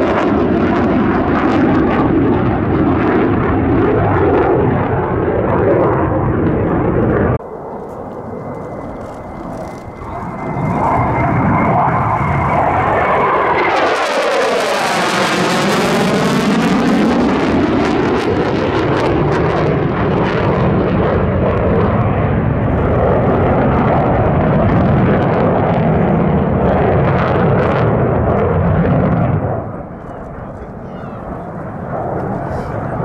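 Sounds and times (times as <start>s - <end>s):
jets passing low overhead: 0.0s - 33.0s.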